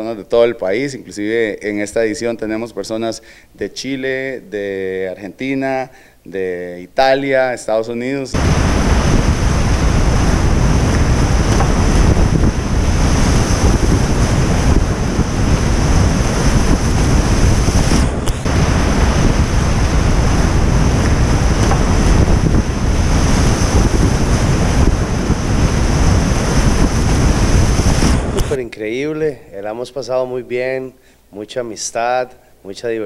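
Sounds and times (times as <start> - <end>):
rushing whitewater: 8.4 - 28.6.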